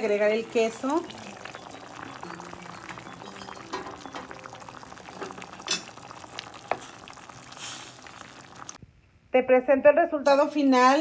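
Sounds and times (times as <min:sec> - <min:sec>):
salsa bubbling and popping in pan: 0:00.0 - 0:08.8.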